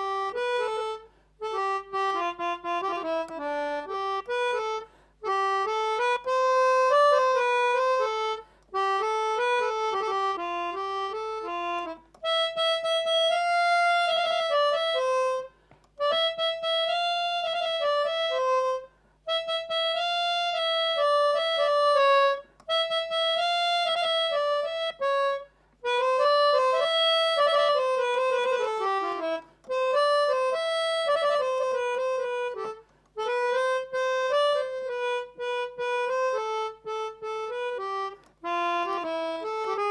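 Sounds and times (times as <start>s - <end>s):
melodica melody: 0.0s - 39.9s.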